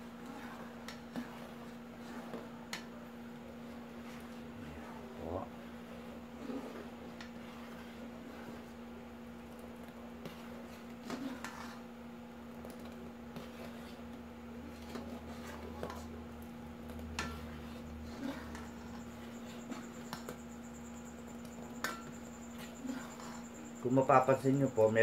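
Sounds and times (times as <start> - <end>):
boiling water: 0.0 - 25.0
steady low hum: 0.0 - 25.0
ladle scraping and tapping pot: 9.8 - 11.8, 16.8 - 23.8.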